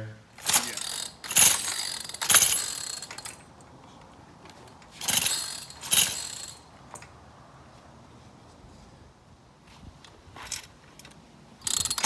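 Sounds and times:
chainsaw pull-starter whirring: 0:00.4 - 0:03.5, 0:04.8 - 0:06.7, 0:11.6 - 0:12.0.

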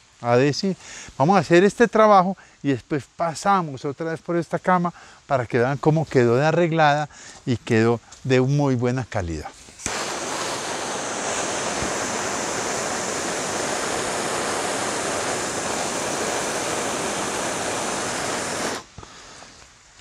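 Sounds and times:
gas torch hissing: 0:09.7 - 0:19.7.

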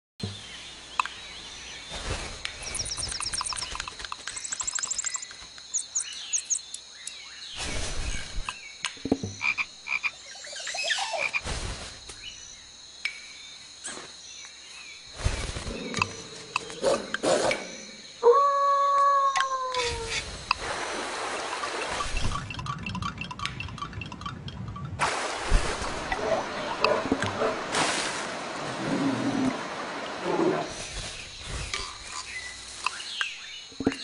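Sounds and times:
frog croaking in pulsed trills: 0:02.7 - 0:06.8, 0:22.2 - 0:25.0.

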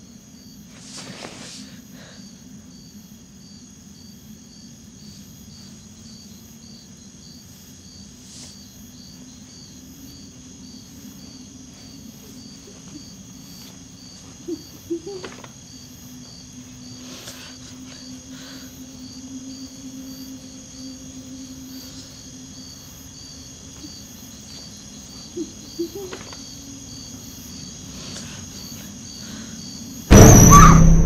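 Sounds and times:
crickets chirping: 0:00.0 - 0:31.0
woman sobbing: 0:14.3 - 0:15.5, 0:25.3 - 0:26.4
low steady drone: 0:30.1 - 0:31.0.

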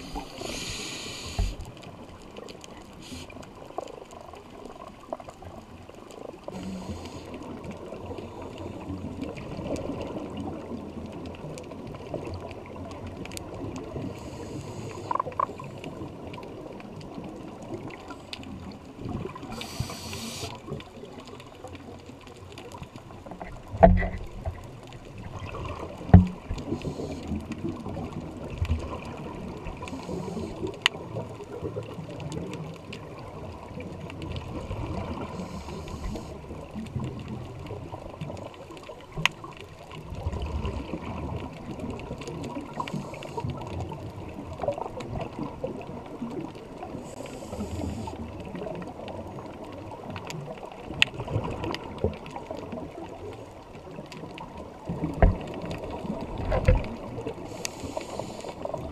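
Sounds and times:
scuba regulator bubbles hissing: 0:00.0 - 0:01.7, 0:03.0 - 0:03.4, 0:19.3 - 0:20.7, 0:26.6 - 0:27.6, 0:46.9 - 0:48.3, 0:57.4 - 0:58.9
low underwater rumble: 0:00.0 - 0:58.9.

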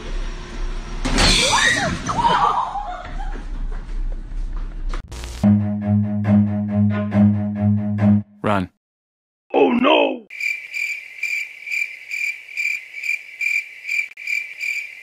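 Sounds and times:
music: 0:05.4 - 0:08.4
crickets chirping: 0:10.3 - 0:15.0.

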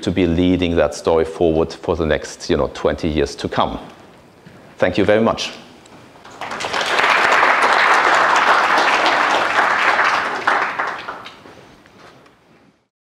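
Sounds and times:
audience applauding: 0:06.2 - 0:11.7.

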